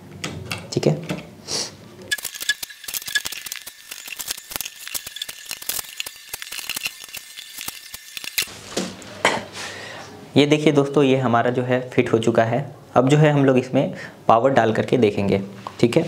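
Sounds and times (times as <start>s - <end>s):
screws and plastic parts rattling: 2.1s - 8.5s.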